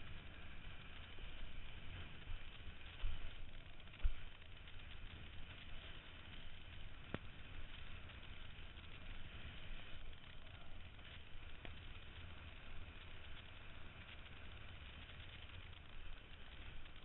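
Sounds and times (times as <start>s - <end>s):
kiteboard skimming choppy water: 0.0s - 16.8s.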